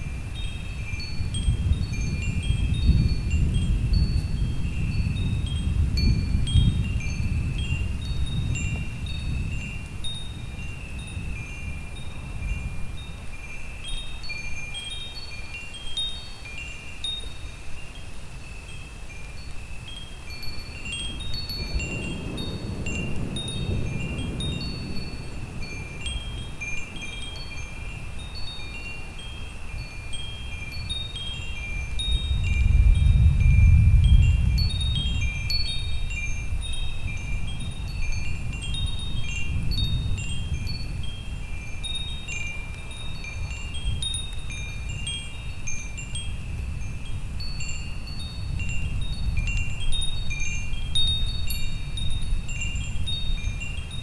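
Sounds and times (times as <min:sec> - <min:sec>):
wind chimes ringing: 0:00.0 - 0:54.0
low rolling thunder: 0:21.7 - 0:25.9, 0:32.6 - 0:35.0.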